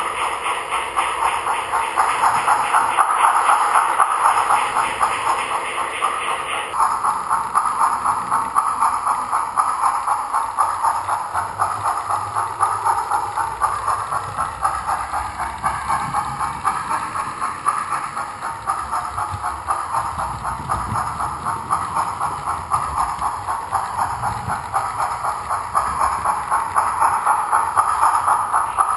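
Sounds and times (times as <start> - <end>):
model train wheels clattering: 0.0 - 28.9.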